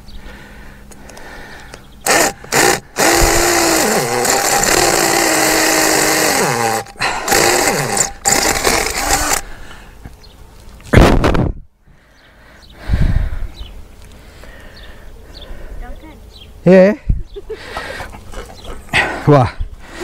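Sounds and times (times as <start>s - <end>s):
power drill boring into concrete: 2.0s - 9.4s.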